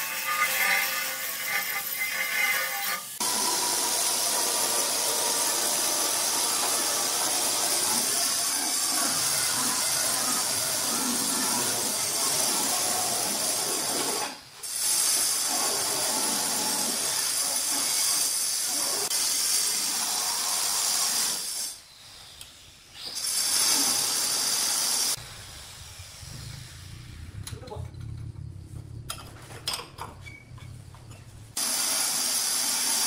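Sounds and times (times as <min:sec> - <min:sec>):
stone-cutting machinery hissing: 0:00.0 - 0:26.8, 0:31.6 - 0:33.0.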